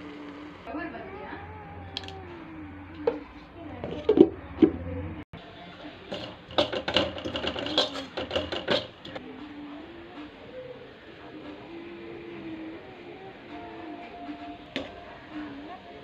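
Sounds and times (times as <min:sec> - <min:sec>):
faint voices: 0:00.0 - 0:16.0
metal spoon scraping steel vessel: 0:06.1 - 0:09.2.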